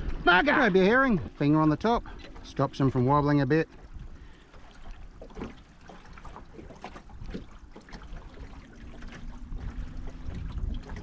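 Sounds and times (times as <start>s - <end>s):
water lapping against boat hull: 0.0s - 11.0s
low rumble: 8.6s - 11.0s.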